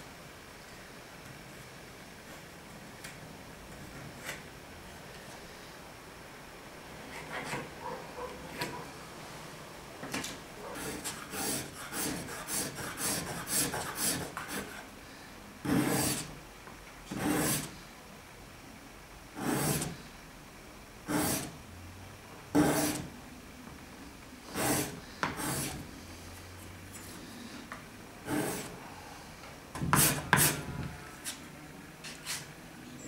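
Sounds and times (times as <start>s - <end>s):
sandpaper scraping wood: 10.8s - 14.9s, 15.6s - 16.3s, 17.1s - 17.7s, 19.4s - 20.0s, 21.1s - 21.6s, 22.6s - 23.1s, 24.5s - 25.8s, 28.2s - 28.8s, 29.9s - 31.4s.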